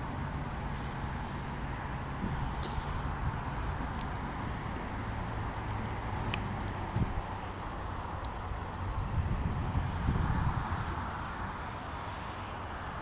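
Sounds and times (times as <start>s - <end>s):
wind rumble on microphone: 1.7s - 11.8s
small clicks and knocks: 4.8s - 11.1s.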